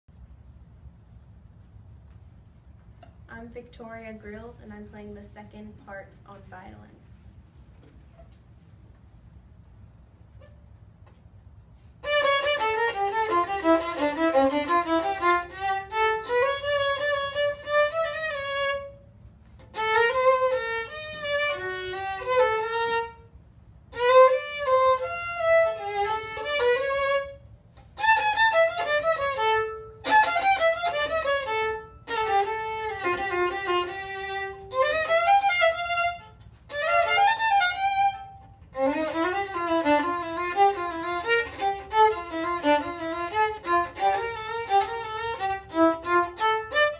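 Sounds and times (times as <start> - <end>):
solo violin playing: 12.0 - 46.9.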